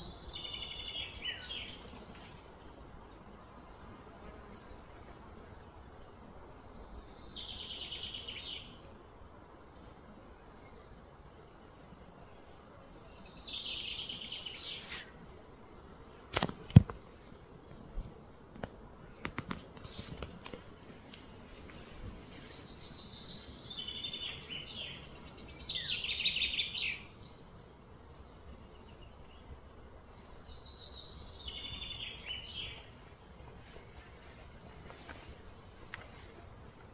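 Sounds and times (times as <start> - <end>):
bird song in pulsed trills: 0.0 - 1.8, 5.6 - 9.2, 19.8 - 33.4
outdoor background noise: 0.0 - 36.9.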